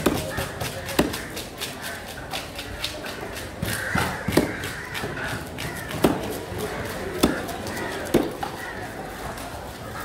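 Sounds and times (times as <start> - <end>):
knife chopping into wooden block: 0.0 - 1.2, 3.7 - 4.8, 7.2 - 8.4.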